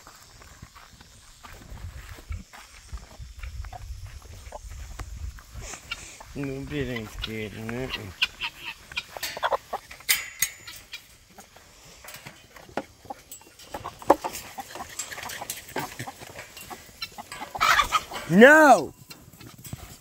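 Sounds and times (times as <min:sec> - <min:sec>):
chickens clucking softly: 0:03.3 - 0:18.4
taps and rustles in grass: 0:11.9 - 0:18.4.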